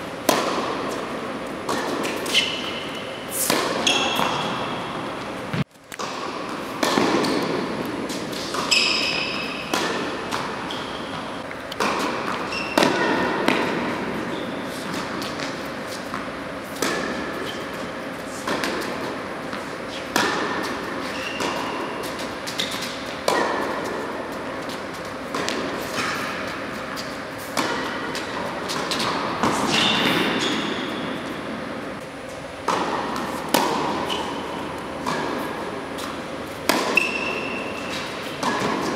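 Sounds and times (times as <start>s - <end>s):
tennis racket hitting ball: 0.2s - 38.9s
ball bouncing: 8.5s - 14.1s, 24.6s - 26.6s.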